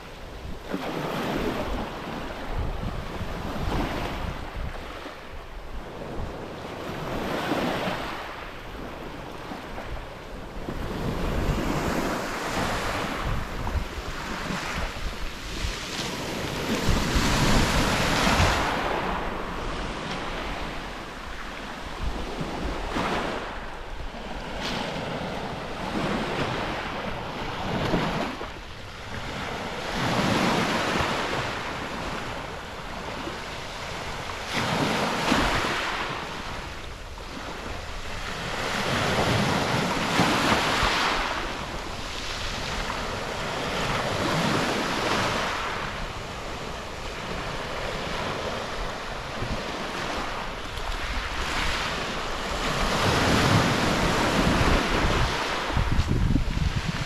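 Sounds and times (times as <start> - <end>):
wind buffeting microphone: 0.0 - 57.0
waves washing on pebble beach: 10.9 - 23.8, 24.4 - 57.0.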